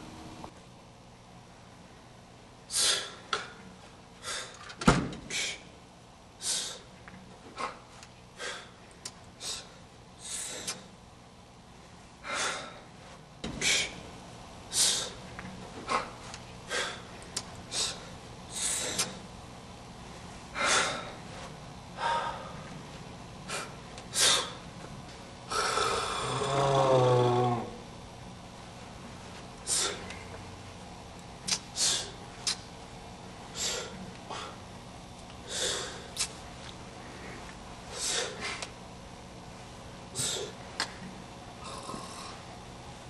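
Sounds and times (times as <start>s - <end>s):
person snorting breaths: 22.0s - 22.6s, 25.5s - 27.8s, 41.6s - 42.4s
drawn-out wavering voice: 25.9s - 27.9s.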